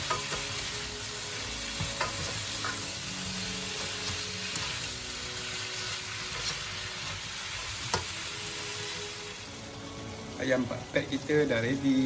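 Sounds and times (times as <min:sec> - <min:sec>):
food sizzling in a wok: 0:00.0 - 0:12.0
spatula scraping and knocking pan: 0:01.8 - 0:02.9.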